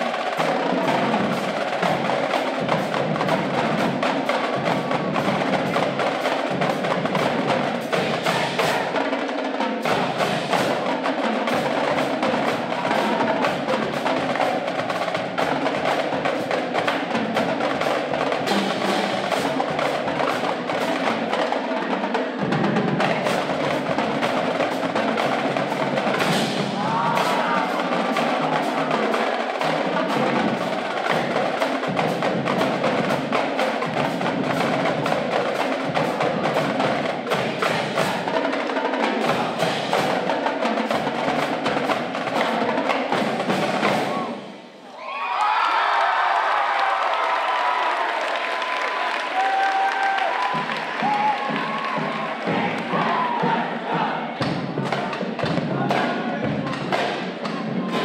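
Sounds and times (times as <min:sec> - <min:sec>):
marching drumline cadence: 0:00.0 - 0:58.0.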